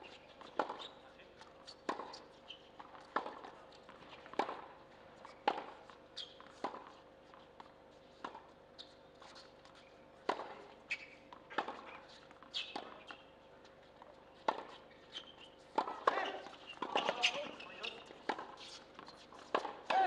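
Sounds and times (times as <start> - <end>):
tennis ball bouncing on court: 0.4 - 0.9, 1.6 - 7.0, 10.2 - 10.6, 11.3 - 13.2, 14.0 - 20.0.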